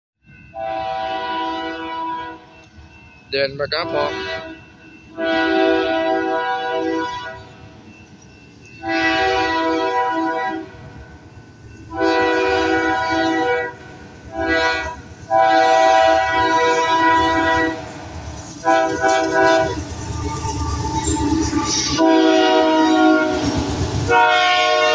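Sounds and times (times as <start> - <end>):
train rumble: 0.2 - 24.9
locomotive air horn blasts: 0.5 - 2.5, 3.8 - 7.6, 8.8 - 10.8, 11.9 - 17.9, 18.6 - 19.9, 21.8 - 24.9.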